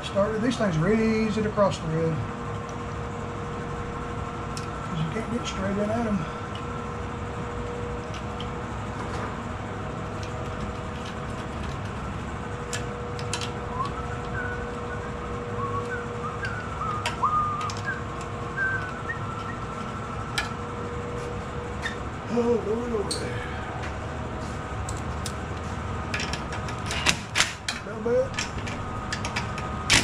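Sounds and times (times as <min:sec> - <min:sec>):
steady hum: 0:00.0 - 0:30.0
small metal parts clicking: 0:12.7 - 0:14.4, 0:26.1 - 0:30.0
short whistled notes: 0:13.7 - 0:20.2.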